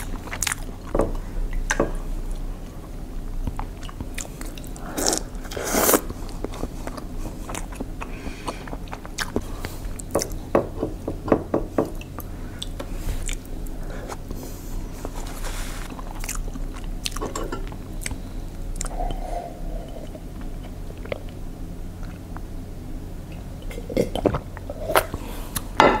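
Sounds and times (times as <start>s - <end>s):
chewing and crunching food: 0.0s - 2.5s, 3.4s - 10.5s, 11.9s - 19.2s, 19.8s - 22.6s.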